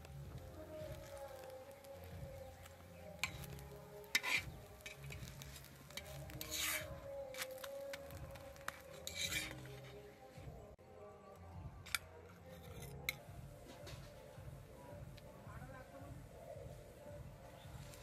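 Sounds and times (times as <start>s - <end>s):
faint frying sizzle: 0.0s - 9.2s
metal spatula scraping iron pan: 3.2s - 7.7s, 8.6s - 10.0s.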